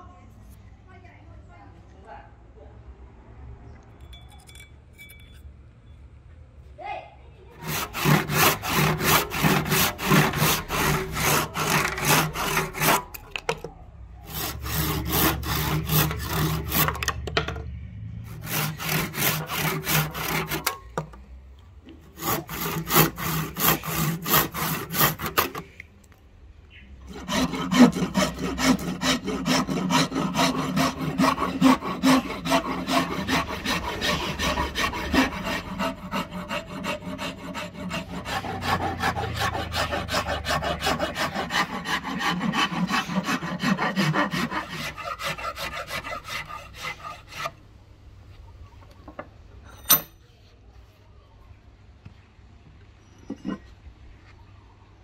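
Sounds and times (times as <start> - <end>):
file rasping on wood: 7.6 - 13.6, 14.2 - 17.2, 18.3 - 21.0, 22.1 - 25.7, 27.1 - 47.6
handsaw cutting wood: 7.6 - 13.6, 14.2 - 17.2, 18.2 - 21.0, 22.0 - 25.8, 27.1 - 47.6.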